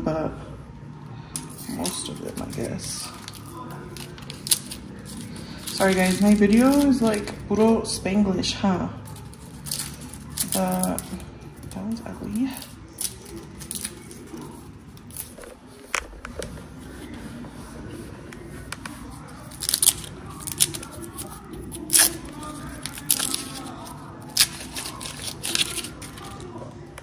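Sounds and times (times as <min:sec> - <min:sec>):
vegetables being peeled: 0:01.4 - 0:07.6, 0:09.0 - 0:27.0.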